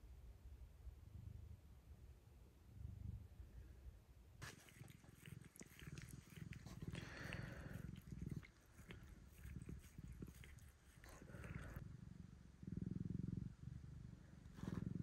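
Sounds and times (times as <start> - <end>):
cat purring: 2.7 - 3.4, 4.4 - 15.0
cat licking its paw: 4.4 - 11.8.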